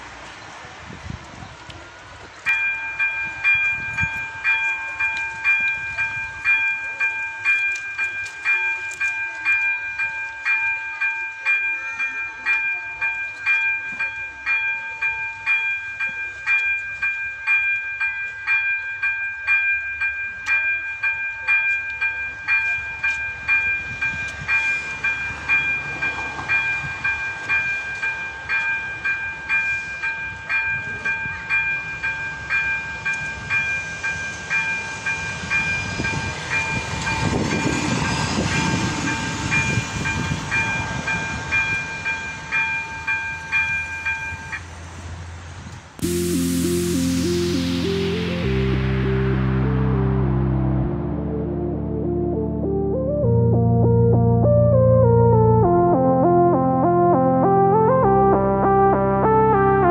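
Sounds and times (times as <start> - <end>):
level-crossing warning bell ringing: 2.4 - 44.8.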